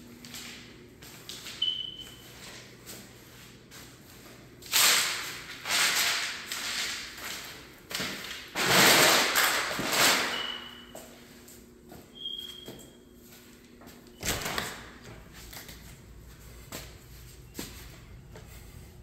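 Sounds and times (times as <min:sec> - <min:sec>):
footsteps on rustling paper: 0:10.9 - 0:19.0.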